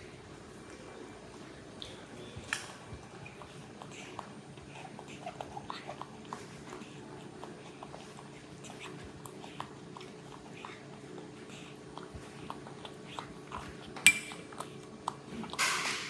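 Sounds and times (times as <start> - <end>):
monkey chewing: 1.8 - 16.0
metal fork tapping ceramic bowl: 14.1 - 14.4.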